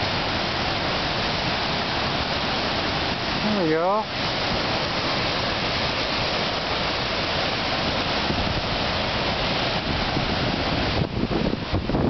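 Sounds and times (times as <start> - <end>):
wind: 0.0 - 12.0
storm surf breaking: 2.1 - 12.0
wind buffeting microphone: 4.2 - 12.0.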